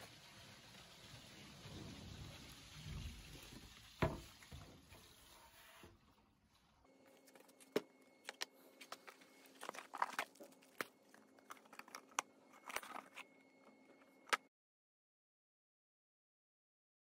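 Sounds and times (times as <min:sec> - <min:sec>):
plastic wrap crinkling: 0:07.0 - 0:14.4.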